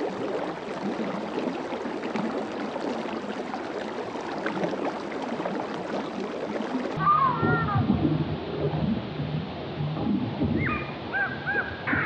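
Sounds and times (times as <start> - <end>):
water splashing and trickling: 0.0 - 11.2.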